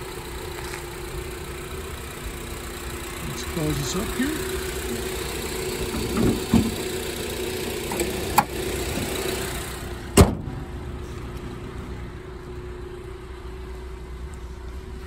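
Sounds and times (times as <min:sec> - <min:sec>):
car hood slamming shut: 0:05.9 - 0:06.8, 0:10.1 - 0:10.6.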